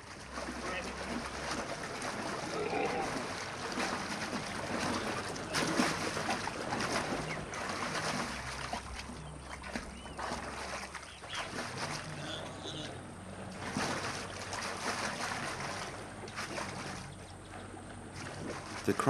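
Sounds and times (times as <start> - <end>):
water splashing and churning: 0.0 - 19.0.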